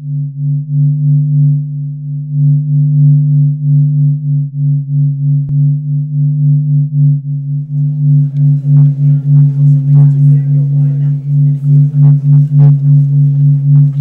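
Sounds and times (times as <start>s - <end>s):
pulsing electronic drone: 5.0s - 14.0s
crowd voices: 7.8s - 14.0s.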